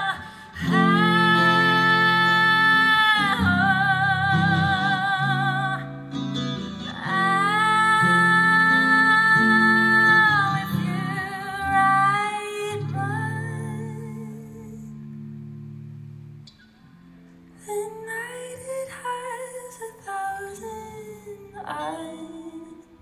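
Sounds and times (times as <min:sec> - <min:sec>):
woman singing with vibrato: 0:00.0 - 0:15.1, 0:17.6 - 0:23.0.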